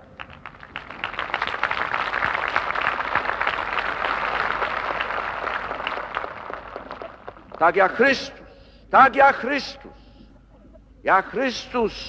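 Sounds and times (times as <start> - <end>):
large crowd applauding: 0.0 - 7.6.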